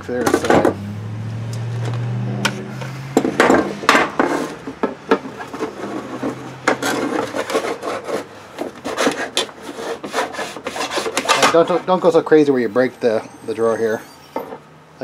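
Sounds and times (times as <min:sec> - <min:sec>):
plastic drawer scraping: 0:02.4 - 0:12.1.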